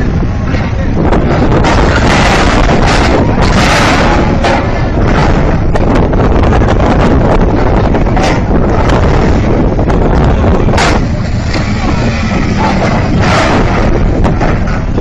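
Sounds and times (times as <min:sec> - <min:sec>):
wind rumble on microphone: 0:00.0 - 0:15.0
car on steel ramp: 0:01.1 - 0:15.0.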